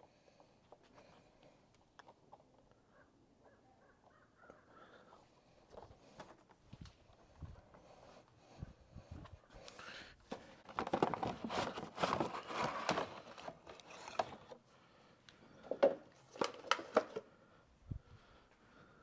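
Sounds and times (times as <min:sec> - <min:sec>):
rustling crinkling handling: 0:09.7 - 0:14.6.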